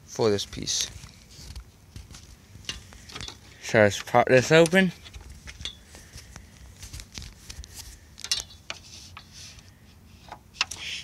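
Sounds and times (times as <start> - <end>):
hands rustling: 5.2 - 8.2.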